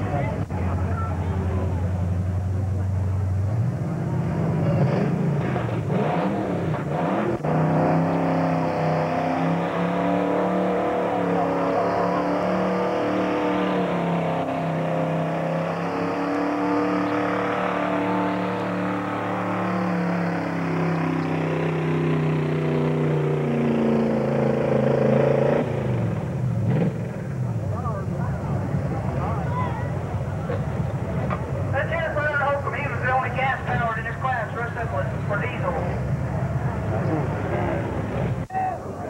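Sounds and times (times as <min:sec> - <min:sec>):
pickup engine revving hard: 0:03.6 - 0:27.1.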